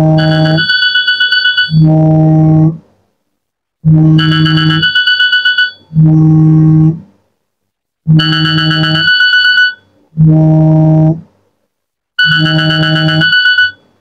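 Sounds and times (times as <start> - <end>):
alarm low buzzing tone: 0.0 - 2.8, 3.8 - 5.0, 5.7 - 7.1, 8.0 - 9.2, 9.8 - 11.3, 12.2 - 13.8.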